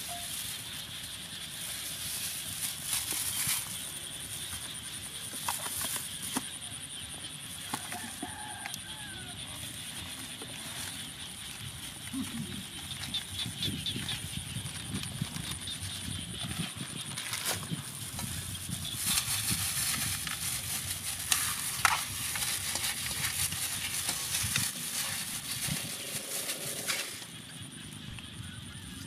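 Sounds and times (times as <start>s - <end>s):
plastic glove crinkling: 0.0s - 4.7s, 13.9s - 27.4s.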